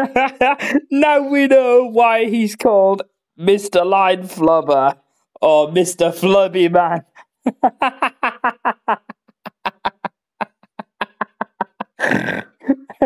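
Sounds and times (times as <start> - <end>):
man laughing: 0.0 - 1.0, 7.2 - 12.6.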